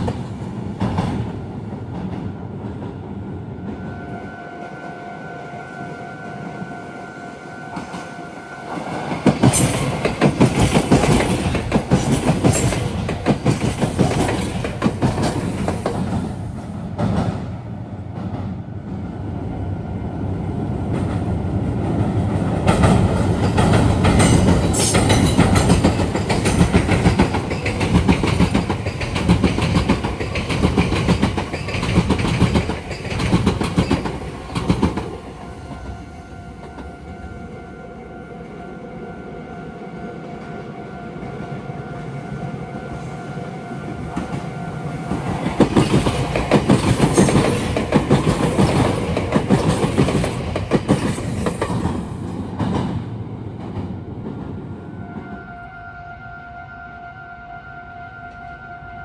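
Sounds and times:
train wheels clattering: 0.0s - 3.0s, 8.7s - 17.5s, 20.9s - 35.4s, 44.1s - 54.6s
steady warning tone: 3.6s - 10.2s, 35.2s - 46.5s.

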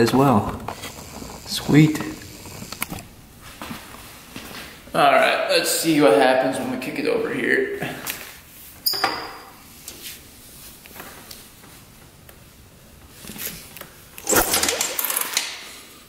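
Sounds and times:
motorcycle engine being kicked over: 14.2s - 15.5s.

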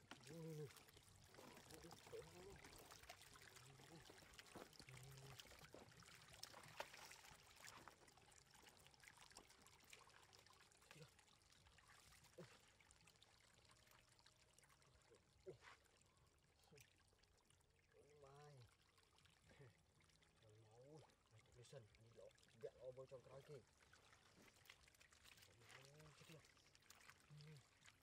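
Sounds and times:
splashes in muddy water: 0.0s - 8.1s, 23.3s - 28.0s
water trickling: 0.0s - 28.0s.

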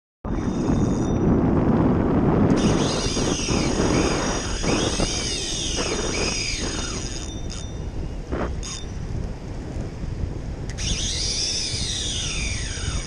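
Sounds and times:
fishing reel whining: 0.3s - 1.4s, 2.4s - 9.2s, 10.7s - 13.0s
wind buffeting microphone: 0.3s - 13.0s.

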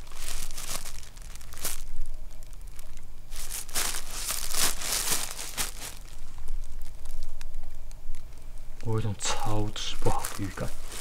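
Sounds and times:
clothes rustling: 0.0s - 1.9s, 3.3s - 6.8s, 9.9s - 11.0s.

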